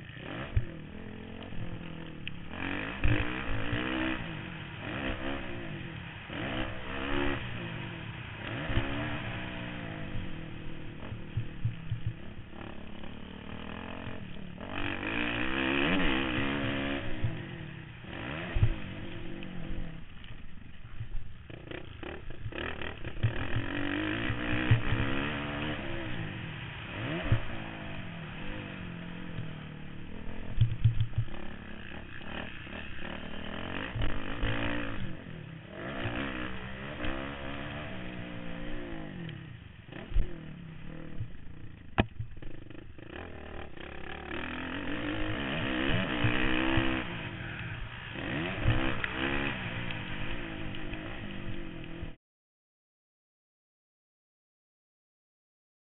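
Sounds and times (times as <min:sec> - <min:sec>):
motorbike engine revving: 0:00.0 - 0:52.2
low thumps: 0:08.5 - 0:14.4, 0:18.4 - 0:25.2, 0:29.2 - 0:32.0, 0:39.9 - 0:43.1.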